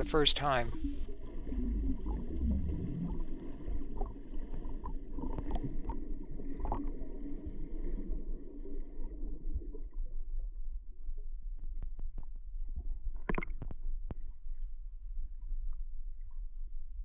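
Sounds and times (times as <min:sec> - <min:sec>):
muffled underwater rumble: 0:00.0 - 0:17.0.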